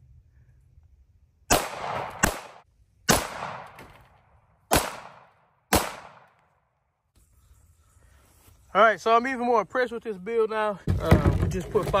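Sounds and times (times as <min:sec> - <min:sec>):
pistol shots with echo: 0:01.5 - 0:03.8, 0:04.7 - 0:06.3.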